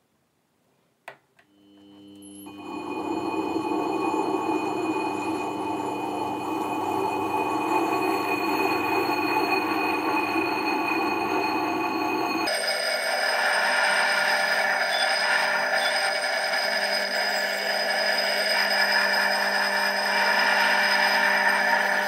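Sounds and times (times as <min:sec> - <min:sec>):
lapping machine humming and whining: 0:01.4 - 0:22.0
grinding hiss: 0:02.4 - 0:12.5, 0:13.1 - 0:22.0.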